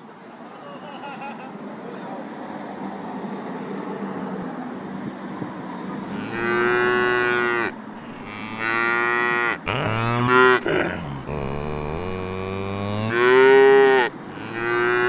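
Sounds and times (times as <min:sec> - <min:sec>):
street noise: 0:00.0 - 0:15.0
cow mooing: 0:06.2 - 0:15.0.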